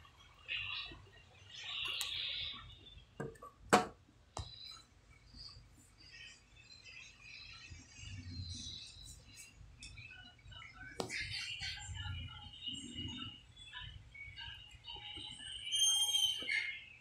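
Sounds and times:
faint high chirping: 0:04.4 - 0:17.0.

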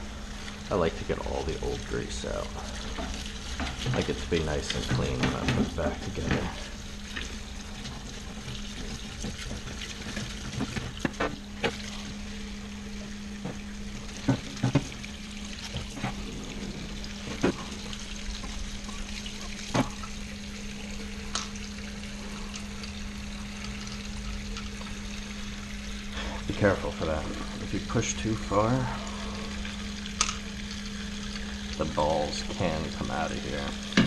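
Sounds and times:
solvent streaming and splashing: 0:00.0 - 0:34.0
steady low hum: 0:00.0 - 0:34.0.

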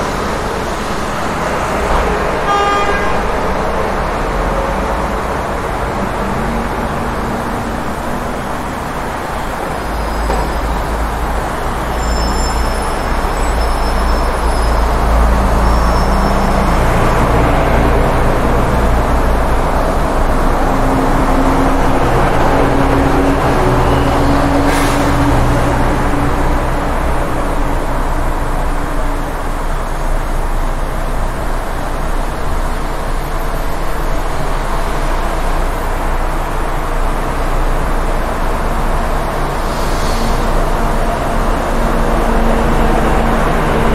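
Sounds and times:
traffic engines and tyres rumbling: 0:00.0 - 0:43.9
faint high squeals: 0:11.8 - 0:16.7.

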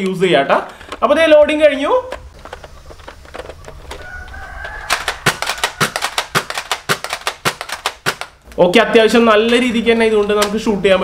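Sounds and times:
foam dart blaster clicks and snaps: 0:04.2 - 0:08.5.

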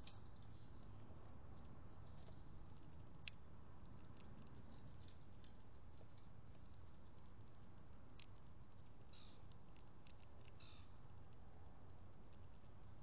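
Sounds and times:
light clicks and taps: 0:00.0 - 0:10.6.

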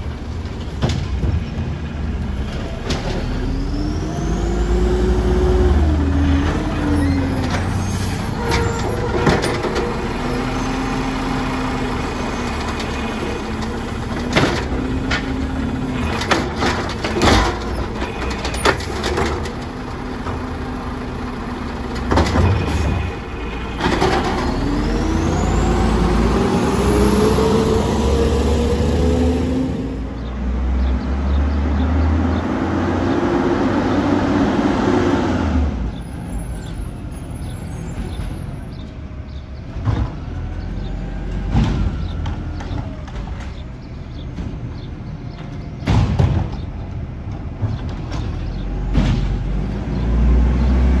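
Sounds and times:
garbage truck diesel engine: 0:00.0 - 0:51.0
sharp knocks and bangs: 0:41.3 - 0:50.0.

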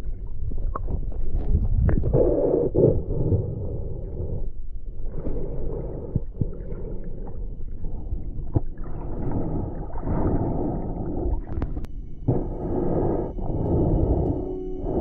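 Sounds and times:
low rumble of moving water: 0:00.0 - 0:15.0
muffled underwater noise: 0:08.0 - 0:15.0.

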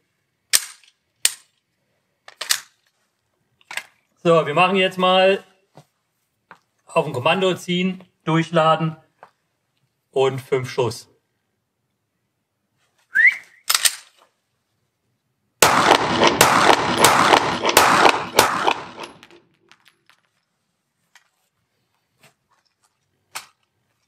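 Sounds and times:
pistol slide racking clicks: 0:13.7 - 0:14.1
pistol shots echoing: 0:15.6 - 0:19.4.

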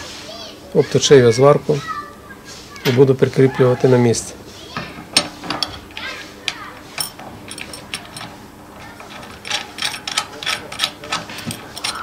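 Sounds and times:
bolt clicking and scraping: 0:05.1 - 0:12.0.

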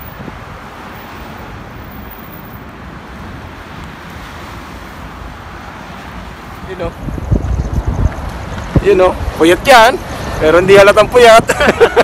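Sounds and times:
wind noise on microphone: 0:00.0 - 0:00.8, 0:06.6 - 0:11.9
road traffic passing: 0:00.0 - 0:12.0.

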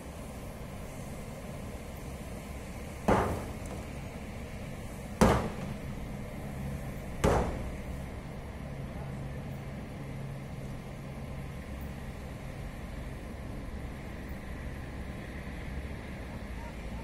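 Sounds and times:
steady low hum: 0:00.0 - 0:17.0
sharp bangs: 0:03.1 - 0:04.0, 0:05.2 - 0:06.1, 0:07.2 - 0:08.0.

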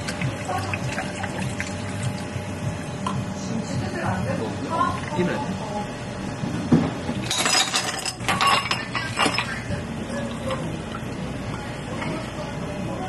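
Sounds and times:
ice and spoon clinking in glass: 0:07.2 - 0:09.6.

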